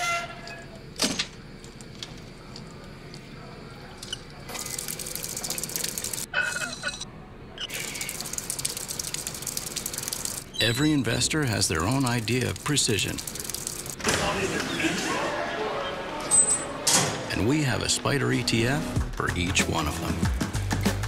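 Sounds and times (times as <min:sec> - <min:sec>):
water jet splashing into basin: 0:07.8 - 0:10.5.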